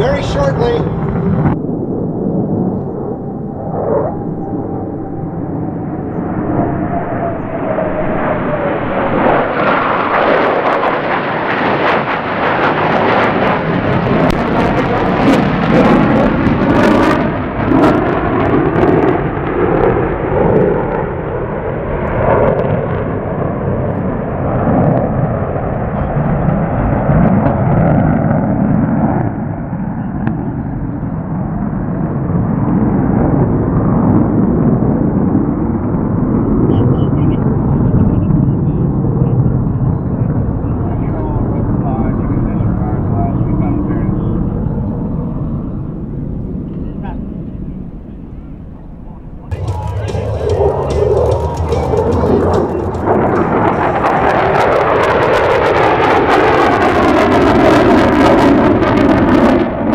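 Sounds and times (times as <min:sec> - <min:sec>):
jet engine crackle: 0:00.0 - 0:30.6, 0:49.5 - 0:59.9
jet flyby: 0:00.0 - 0:59.9
jet rumble: 0:00.0 - 0:59.9.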